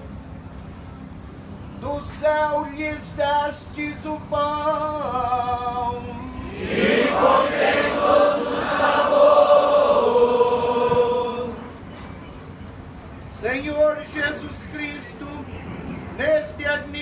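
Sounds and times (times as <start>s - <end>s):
congregation singing: 6.4s - 11.9s.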